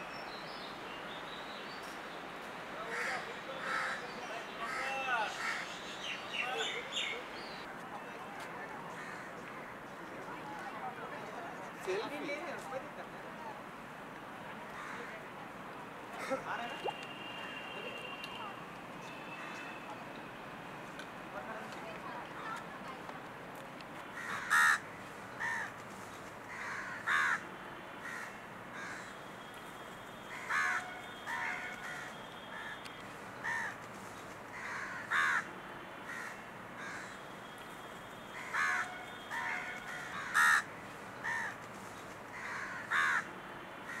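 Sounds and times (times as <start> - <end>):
crows cawing: 2.9 - 4.0, 4.6 - 5.7, 9.0 - 9.3, 14.8 - 15.1, 24.2 - 24.8, 25.4 - 25.7, 26.5 - 27.4, 28.0 - 29.1, 30.3 - 32.8, 33.4 - 33.8, 34.5 - 35.5, 36.1 - 37.2, 38.4 - 41.6, 42.3 - 43.3.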